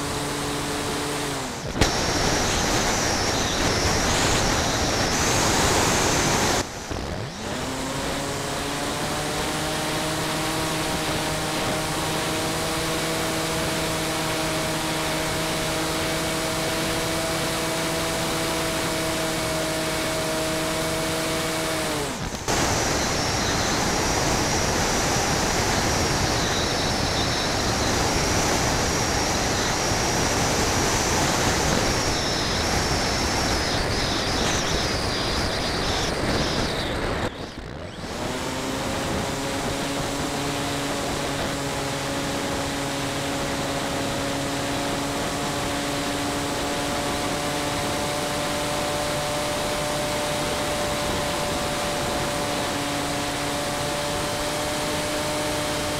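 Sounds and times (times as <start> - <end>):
propeller motor whine: 0.0 - 55.9
rush of airflow: 1.1 - 8.0, 21.9 - 37.4.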